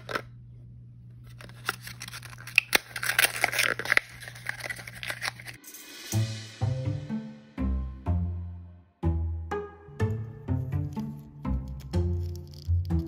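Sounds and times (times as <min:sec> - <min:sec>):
faint steady hum: 0:00.0 - 0:03.4
paper seal tearing: 0:01.4 - 0:05.6.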